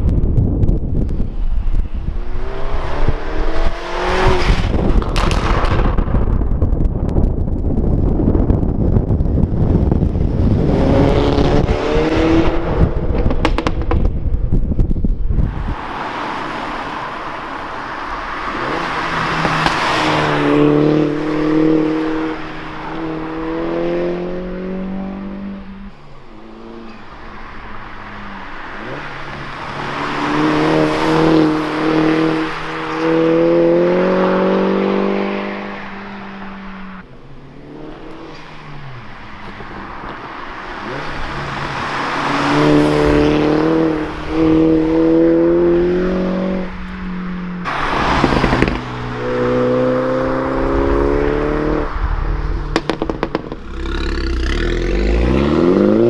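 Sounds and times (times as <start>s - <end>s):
wind buffeting microphone: 0.0s - 25.9s
tyre noise on wet road: 0.0s - 56.0s
car engine accelerating past: 40.8s - 56.0s.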